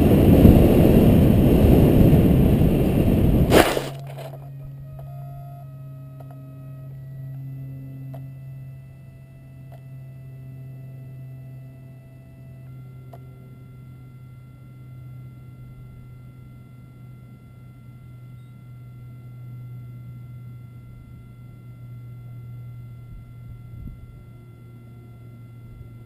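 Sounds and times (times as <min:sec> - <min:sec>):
rushing flight noise: 0:00.0 - 0:04.3
low electronic hum: 0:00.0 - 0:26.0
faint thin whining tones: 0:02.6 - 0:26.0
plane thudding on grass: 0:03.5 - 0:04.5.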